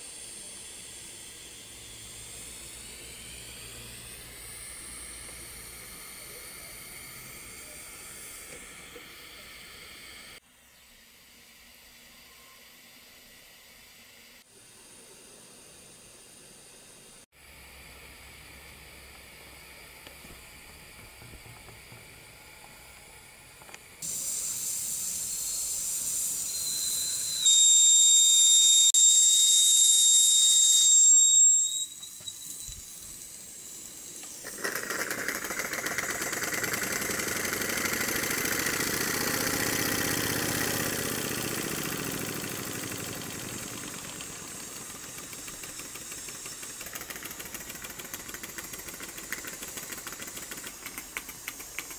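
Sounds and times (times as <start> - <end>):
model steam engine running: 0.0 - 51.9
steam boiler hissing: 0.0 - 51.9
steady whistling note: 24.0 - 34.4.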